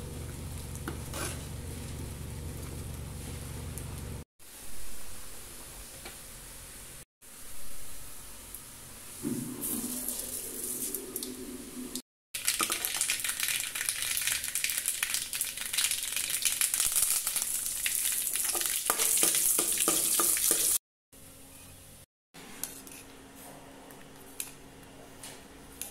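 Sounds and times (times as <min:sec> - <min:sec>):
curry leaves frying in oil: 0:12.4 - 0:20.8.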